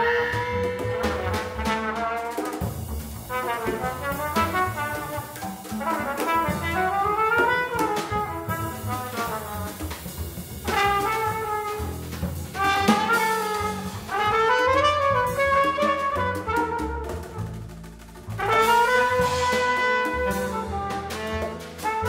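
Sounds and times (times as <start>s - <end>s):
drum kit with cymbals: 0.0s - 22.0s
trumpet: 0.0s - 22.0s
walking double bass: 0.0s - 22.0s.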